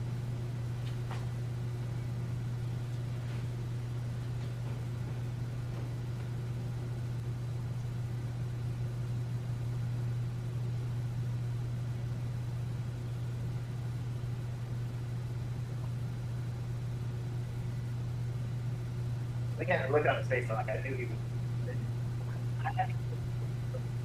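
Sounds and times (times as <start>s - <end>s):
low hum: 0.0s - 24.0s.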